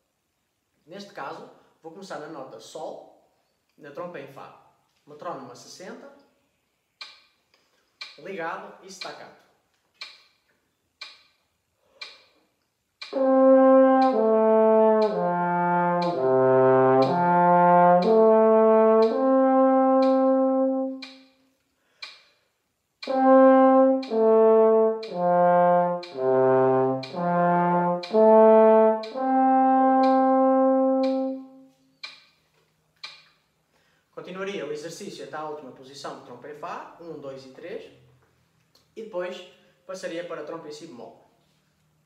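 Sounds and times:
metronome clicking: 0:07.0 - 0:22.4, 0:23.0 - 0:33.5
french horn playing: 0:13.1 - 0:21.0, 0:23.1 - 0:31.7.

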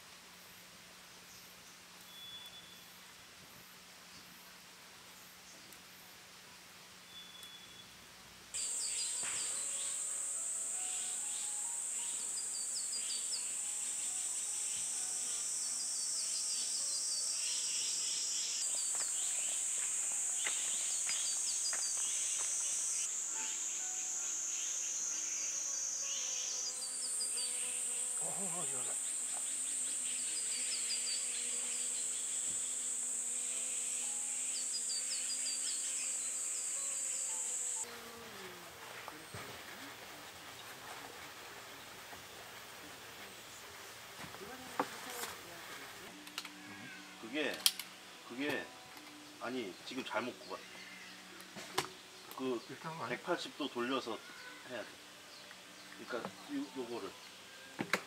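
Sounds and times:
insect chorus drone: 0:08.6 - 0:39.9.

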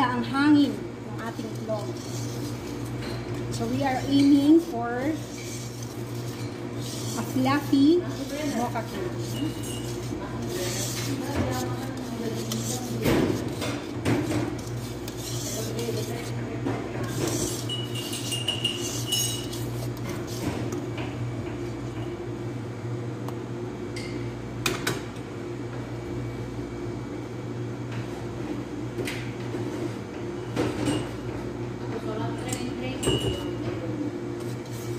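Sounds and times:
whisk scraping metal bowl: 0:00.0 - 0:20.8, 0:34.4 - 0:34.9
steady low hum: 0:00.0 - 0:34.9.

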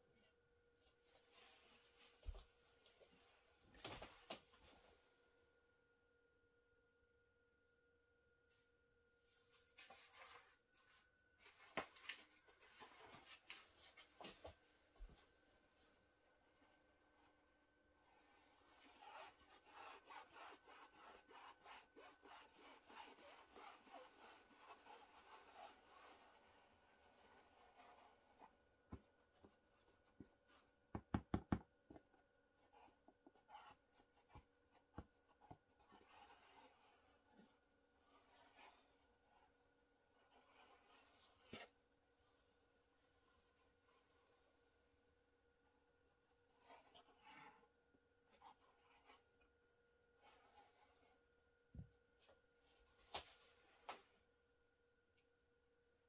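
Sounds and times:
faint rubbing of felt: 0:01.0 - 0:04.9, 0:18.0 - 0:30.7.

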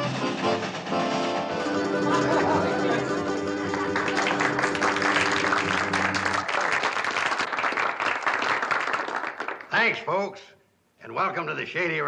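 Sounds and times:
music holding a chord: 0:00.1 - 0:06.2
audience applauding: 0:01.9 - 0:10.0.

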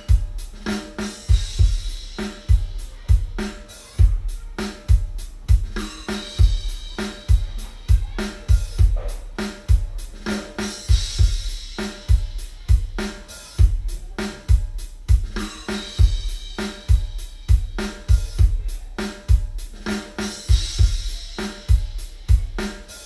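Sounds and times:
cymbals and hi-hat: 0:00.0 - 0:23.0
kick drum hits: 0:07.3 - 0:09.9.

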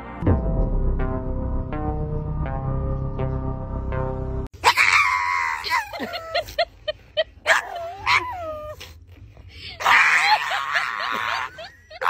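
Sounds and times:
puppy screaming and yelping: 0:07.4 - 0:09.0.

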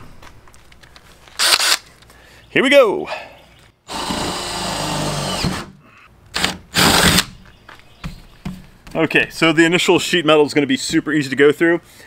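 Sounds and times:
power drill boring through metal: 0:03.9 - 0:05.7.

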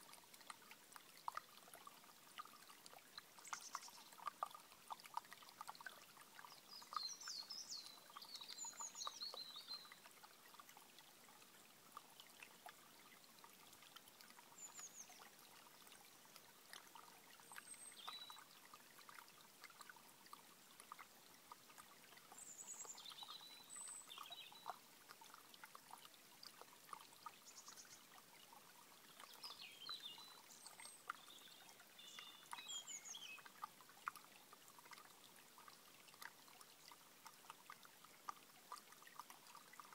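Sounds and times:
stream babbling over stones: 0:00.0 - 0:39.9.

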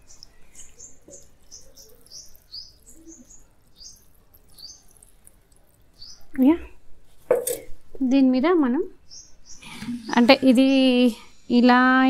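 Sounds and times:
small bird chirping: 0:00.0 - 0:06.7, 0:09.0 - 0:11.1.

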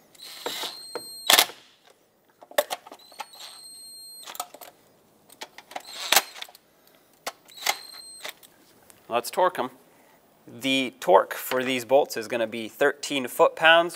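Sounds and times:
power ratchet motor whine: 0:00.1 - 0:01.4, 0:05.8 - 0:06.4.

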